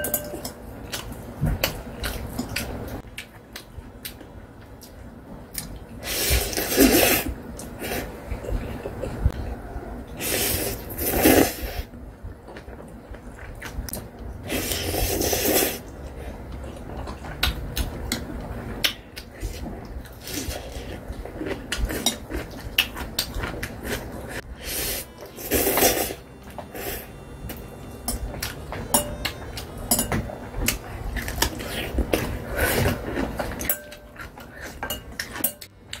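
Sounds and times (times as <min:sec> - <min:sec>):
person slurping noodles: 0:06.0 - 0:08.1, 0:10.2 - 0:11.9, 0:14.5 - 0:15.9, 0:24.0 - 0:26.2.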